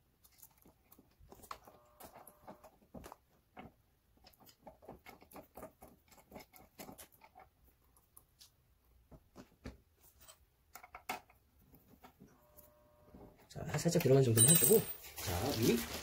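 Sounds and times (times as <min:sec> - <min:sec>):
handling noise: 0:13.2 - 0:16.0.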